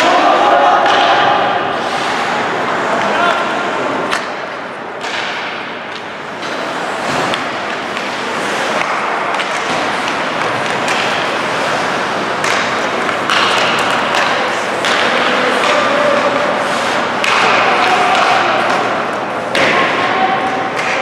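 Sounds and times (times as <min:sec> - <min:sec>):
hockey sticks and puck clacking: 0:00.0 - 0:21.0
skates scraping on ice: 0:01.8 - 0:04.3, 0:05.9 - 0:19.4.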